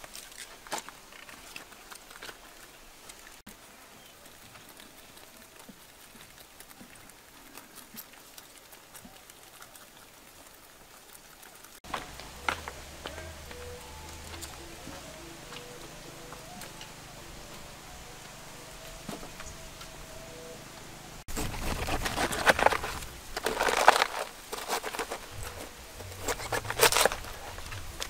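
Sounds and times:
quiet outdoor hiss: 0:00.0 - 0:28.0
rabbits nibbling leaves: 0:00.0 - 0:28.0
background music with low notes: 0:11.9 - 0:21.1.

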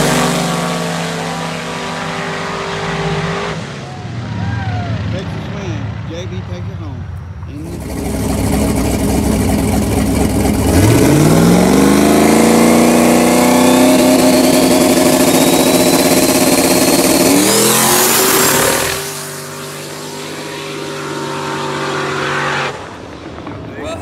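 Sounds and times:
car engine revving: 0:00.0 - 0:24.0
turbo whistle: 0:13.4 - 0:20.8.

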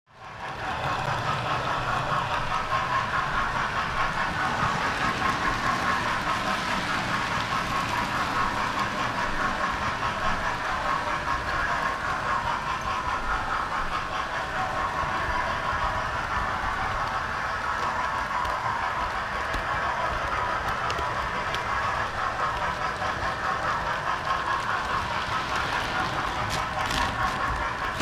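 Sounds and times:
wheels clattering on rails: 0:00.1 - 0:28.0
model train motor whir: 0:00.3 - 0:28.0.

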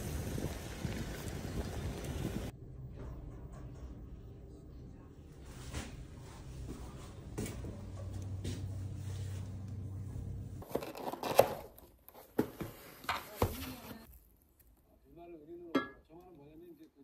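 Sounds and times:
cardboard box tearing: 0:10.6 - 0:11.8.

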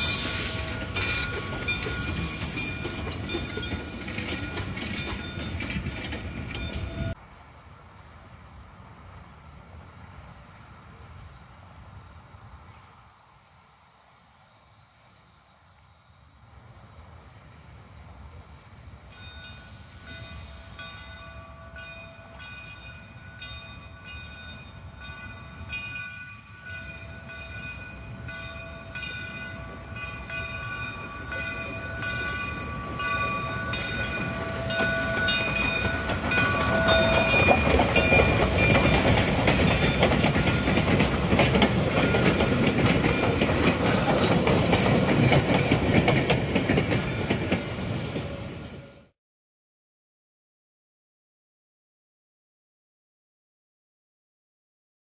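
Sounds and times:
steam locomotive bell ringing: 0:00.0 - 0:07.2, 0:19.1 - 0:48.0.

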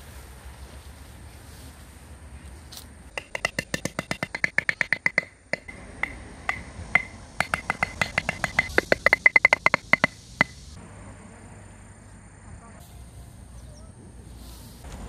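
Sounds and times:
hammer striking metal tent peg: 0:03.1 - 0:10.6.

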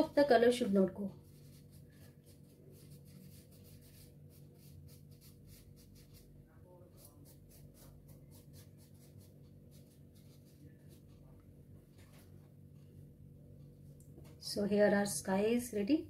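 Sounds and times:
pastel scratching across paper: 0:01.1 - 0:11.4.

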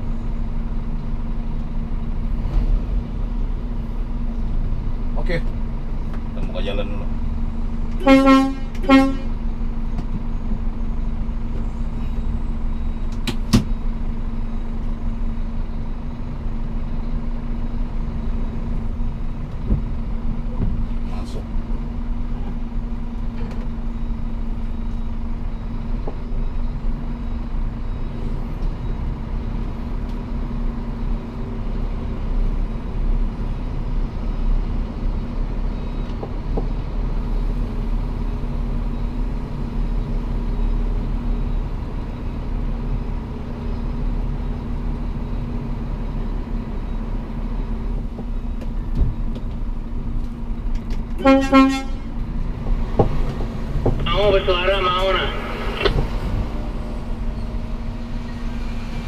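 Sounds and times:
truck diesel engine droning: 0:00.0 - 0:59.0
horn toot: 0:08.0 - 0:09.3, 0:51.2 - 0:52.1.

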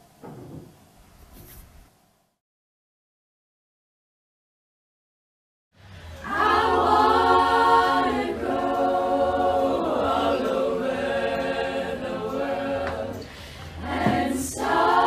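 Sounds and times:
girls' choir singing a cappella: 0:06.2 - 0:15.0.

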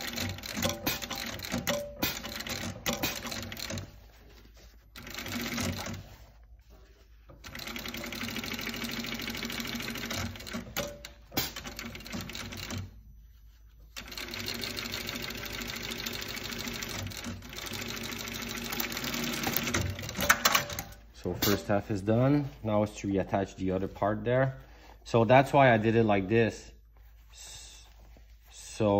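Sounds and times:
sewing machine stitching: 0:00.0 - 0:04.1, 0:05.0 - 0:06.2, 0:07.4 - 0:13.0, 0:14.0 - 0:21.6.

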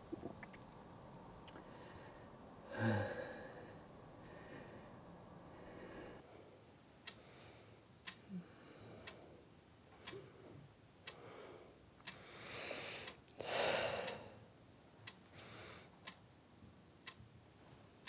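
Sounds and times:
person breathing in: 0:01.6 - 0:04.9, 0:11.2 - 0:14.4
person sighing: 0:02.7 - 0:03.7
clock ticking: 0:07.0 - 0:07.3, 0:08.0 - 0:09.2, 0:09.9 - 0:10.4, 0:11.0 - 0:11.3, 0:12.0 - 0:12.2, 0:13.9 - 0:15.2, 0:16.0 - 0:16.3, 0:17.0 - 0:17.4.

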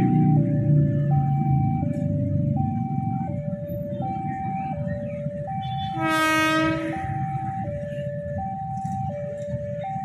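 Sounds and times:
low traffic rumble: 0:00.0 - 0:10.0
electric train horn: 0:05.6 - 0:07.1.

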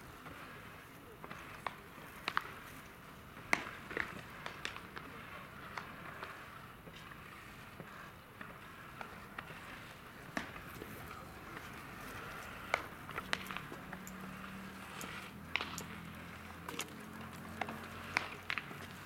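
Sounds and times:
open-air ambience: 0:00.0 - 0:19.0.

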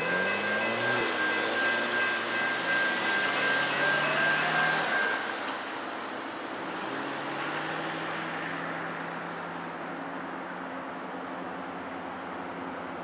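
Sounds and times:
high steady tones: 0:00.0 - 0:07.2
road traffic passing: 0:00.0 - 0:13.0.

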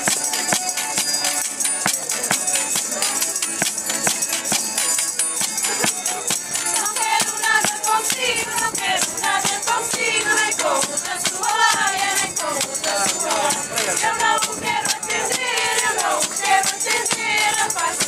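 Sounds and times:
clicking percussion beat: 0:00.0 - 0:18.0
string accompaniment: 0:00.0 - 0:18.0
voices singing: 0:05.0 - 0:18.0.

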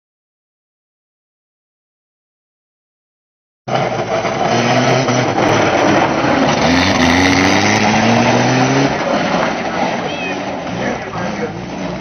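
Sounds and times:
race car engines revving: 0:03.7 - 0:12.0.

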